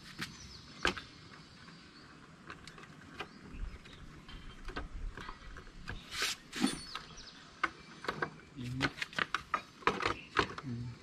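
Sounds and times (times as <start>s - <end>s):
scrape: 6.0s - 6.9s.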